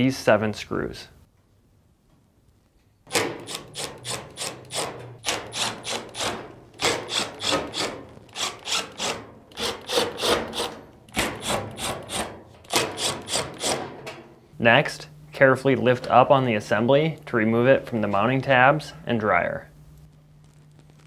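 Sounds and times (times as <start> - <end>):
screwdriver turning out screws: 3.1 - 13.8.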